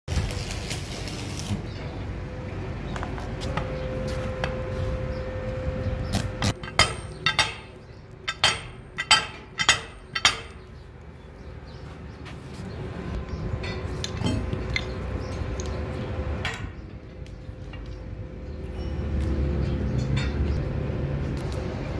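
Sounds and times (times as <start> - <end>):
low rumble: 2.3 - 9.1
metal clanking on metal: 6.4 - 10.8, 13.6 - 15.7, 16.4 - 17.0, 19.6 - 20.6.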